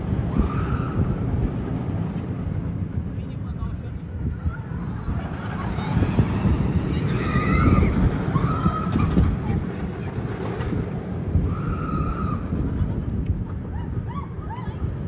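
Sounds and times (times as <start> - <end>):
roller coaster train rumbling: 0.0 - 15.0
wind on microphone: 0.0 - 15.0
riders screaming: 5.2 - 9.4, 11.4 - 12.6.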